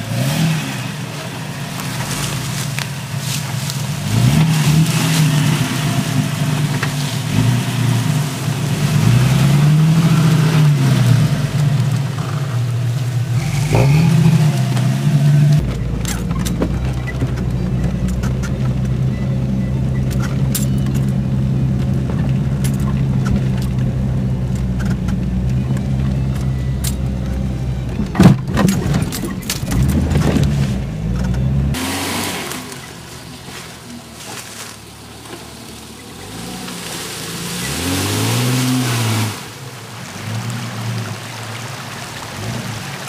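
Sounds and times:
engine revving: 0:00.0 - 0:41.2
engine running under load: 0:00.0 - 0:43.0
water splashing: 0:00.0 - 0:43.0
cab rattles: 0:01.1 - 0:09.4, 0:11.3 - 0:31.8.

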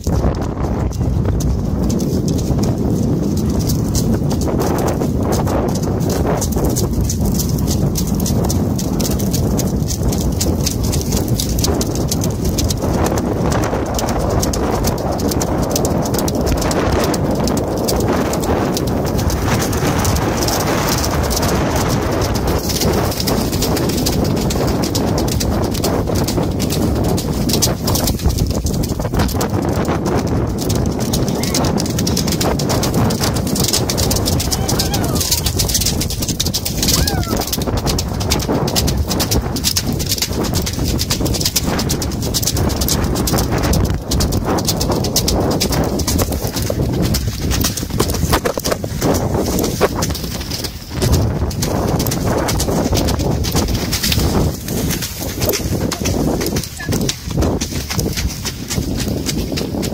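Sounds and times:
hoofbeats on pebbles: 0:00.0 - 0:59.9
splashing through shallow water: 0:36.8 - 0:37.6.

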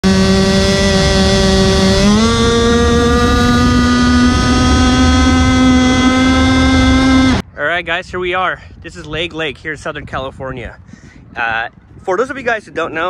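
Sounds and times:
two-stroke boat engine high revs: 0:00.0 - 0:07.4.

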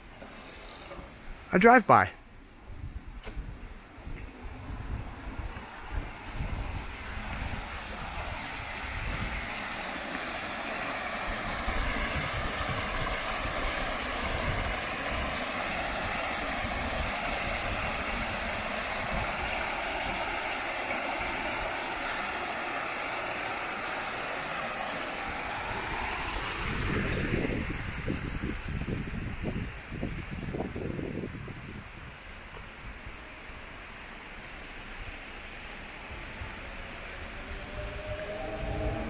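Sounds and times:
wind buffeting microphone: 0:02.6 - 0:22.0, 0:25.2 - 0:33.2, 0:36.1 - 0:39.0
electric train rumbling past: 0:04.0 - 0:30.3, 0:32.8 - 0:39.0
faint wavering whine: 0:36.4 - 0:39.0.

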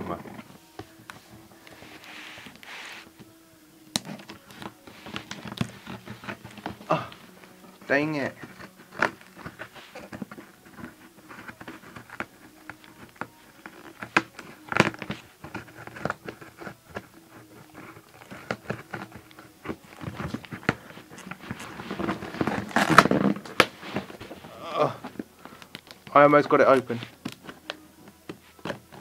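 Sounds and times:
crinkles and rustles: 0:00.0 - 0:29.0
packaging being torn open: 0:20.0 - 0:24.4.

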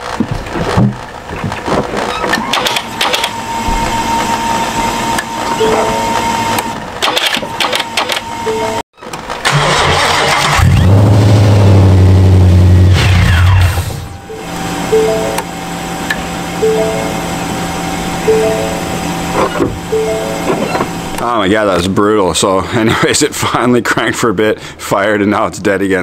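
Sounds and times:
electronic warning tones: 0:02.2 - 0:08.8, 0:14.0 - 0:21.2
starter cranking: 0:07.0 - 0:08.2.

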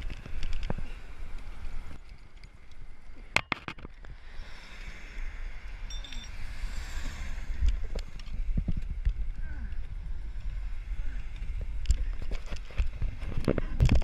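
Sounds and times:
wind rumbling on microphone: 0:00.0 - 0:14.0
traffic road noise: 0:04.0 - 0:13.2.

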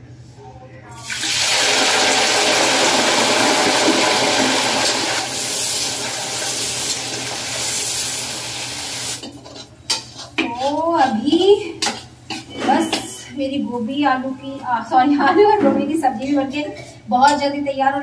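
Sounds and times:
vegetables sizzling in hot oil: 0:01.0 - 0:09.4.

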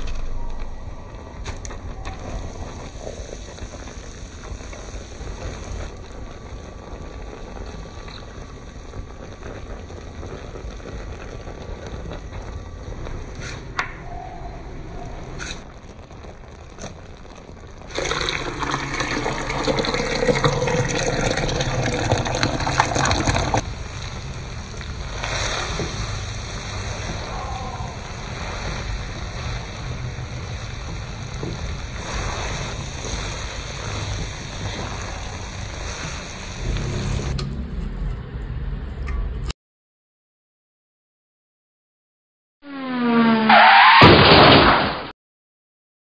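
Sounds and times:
noodles cooking in a pan: 0:02.1 - 0:13.7, 0:15.4 - 0:37.3.

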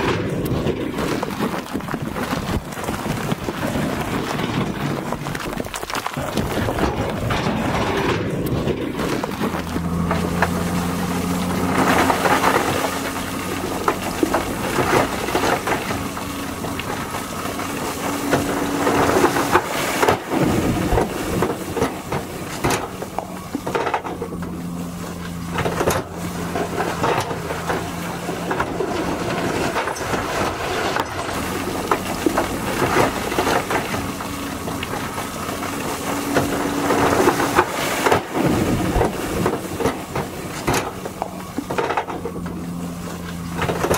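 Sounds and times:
rocks clattering onto pile: 0:00.0 - 0:24.6
diesel truck engines running: 0:00.0 - 0:43.9.

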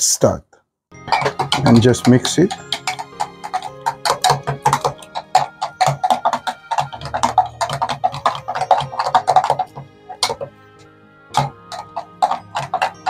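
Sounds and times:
background music with beat: 0:00.9 - 0:13.0
spoon clicking against glass jug: 0:01.1 - 0:10.5.

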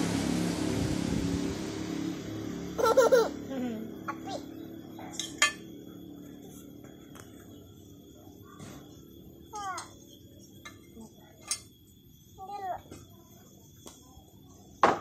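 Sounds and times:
passing vehicle: 0:00.0 - 0:06.2
child laughing: 0:02.8 - 0:04.5.

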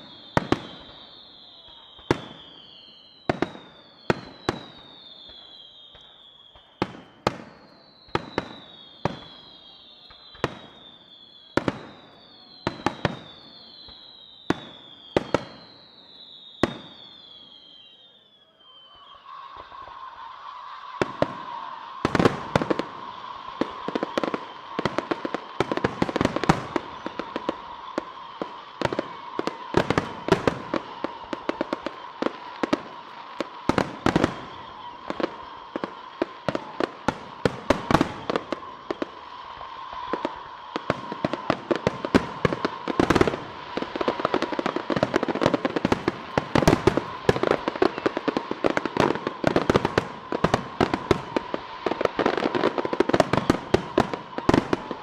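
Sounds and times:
fireworks bursting: 0:00.0 - 0:55.0.

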